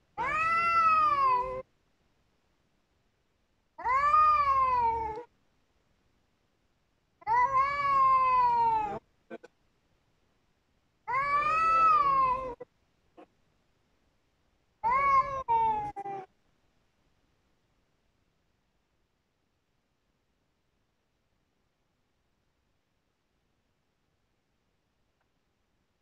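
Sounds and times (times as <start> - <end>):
cats yowling: 0.2 - 1.7, 3.8 - 5.3, 7.2 - 9.0, 11.1 - 12.6, 14.8 - 16.3.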